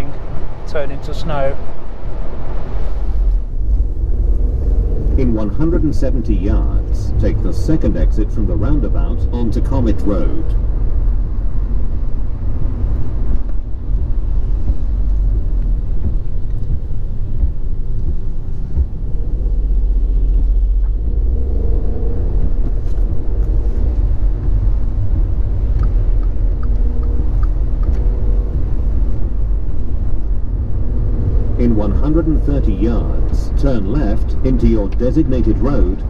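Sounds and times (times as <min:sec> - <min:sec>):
car road noise on wet road: 0:00.0 - 0:36.0.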